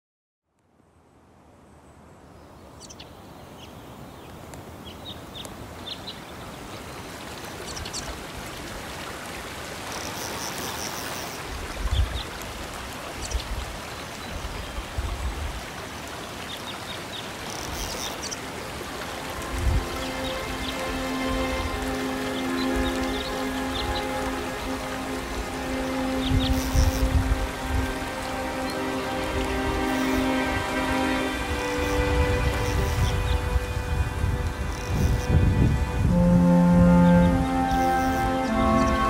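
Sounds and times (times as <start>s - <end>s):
rushing water: 0.8s - 39.0s.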